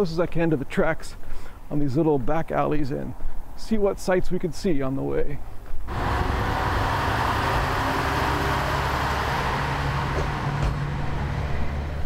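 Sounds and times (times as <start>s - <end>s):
diesel engine hum: 5.9s - 12.0s
train rolling noise: 5.9s - 12.0s.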